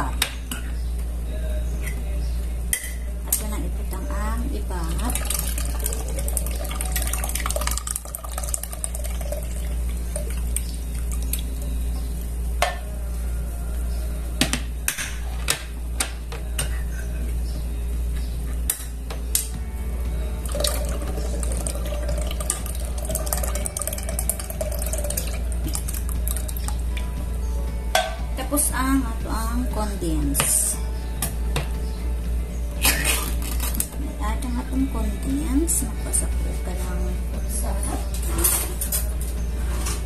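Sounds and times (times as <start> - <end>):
steady low hum: 0.0 - 40.0
milk pouring into pot: 5.0 - 10.6, 20.4 - 26.8.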